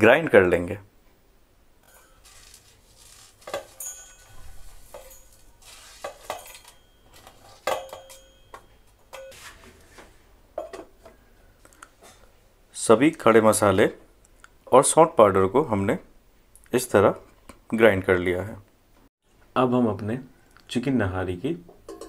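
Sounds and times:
spices clinking in metal jar: 0:01.8 - 0:09.4.

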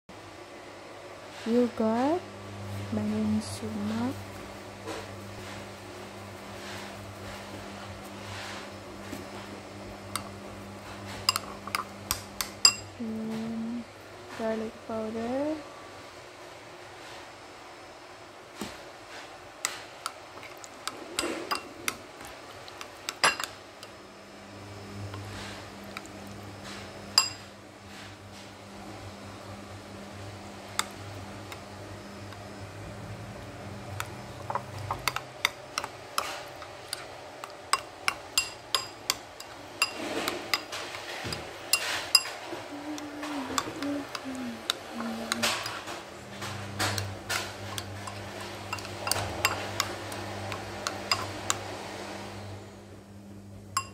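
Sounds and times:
metal spoon clinking on ceramic bowl: 0:11.2 - 0:12.9, 0:23.1 - 0:23.5, 0:27.2 - 0:27.4, 0:37.7 - 0:42.4, 0:47.7 - 0:49.9, 0:50.5 - 0:51.3
spoon scraping wet yogurt: 0:19.7 - 0:23.2, 0:34.0 - 0:51.7.

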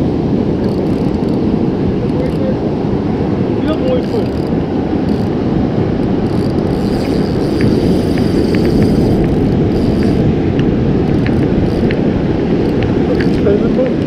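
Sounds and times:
surf washing: 0:00.0 - 0:14.0
wind buffeting microphone: 0:00.0 - 0:14.0
faint ticks: 0:06.3 - 0:12.0, 0:12.6 - 0:13.4.

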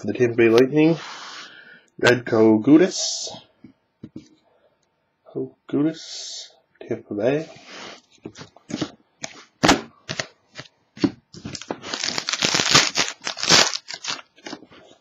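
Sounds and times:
foil wrapper crinkling and tearing: 0:11.4 - 0:14.6.

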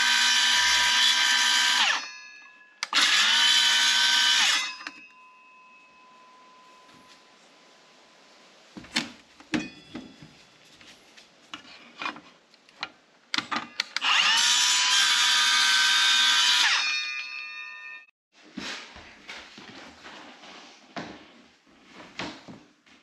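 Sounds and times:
circular saw cutting: 0:00.0 - 0:02.2, 0:02.8 - 0:04.9, 0:14.0 - 0:17.4.

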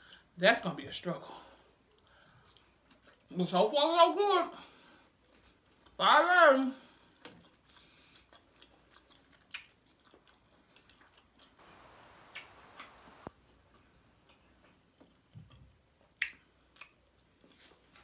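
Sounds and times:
chewing and eating: 0:01.8 - 0:03.4, 0:04.8 - 0:06.0, 0:06.8 - 0:18.0
mouth clicks: 0:11.6 - 0:14.5.

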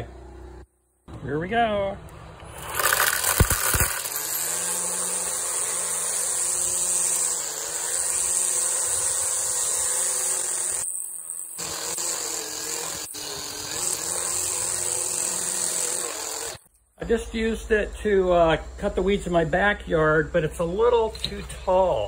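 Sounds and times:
string trimmer cutting grass: 0:02.5 - 0:16.6.

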